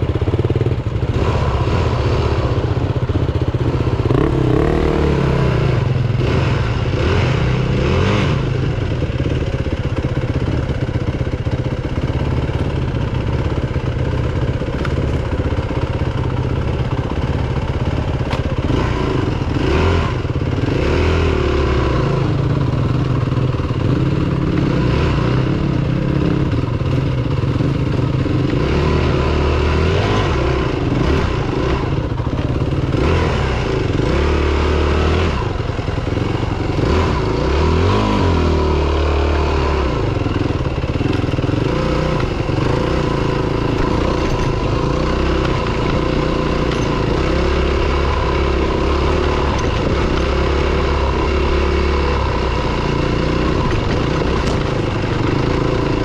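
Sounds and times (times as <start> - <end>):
dirt bike engine revving: 0.0 - 9.9, 15.5 - 56.0
bike knocking and rattling: 8.8 - 19.6, 25.5 - 34.2, 40.0 - 56.0.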